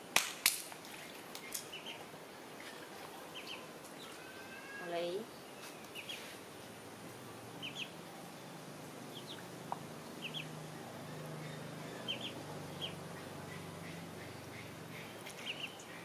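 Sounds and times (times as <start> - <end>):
ducklings peeping: 1.5 - 4.9, 5.7 - 6.3, 7.5 - 8.0, 9.0 - 16.0.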